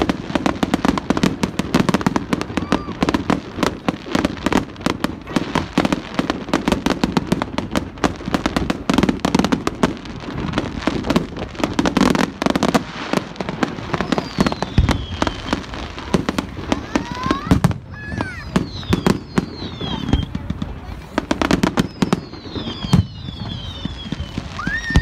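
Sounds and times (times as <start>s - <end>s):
fireworks bangs and crackling: 0.0s - 25.0s
falling firework whistle: 1.8s - 4.6s, 13.8s - 20.6s, 21.4s - 25.0s.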